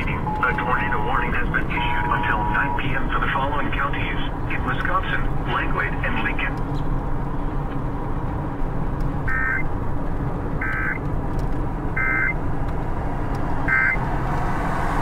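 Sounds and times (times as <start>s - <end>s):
car road and engine noise: 0.0s - 15.0s
short electronic beeps: 0.1s - 3.1s, 12.0s - 12.4s.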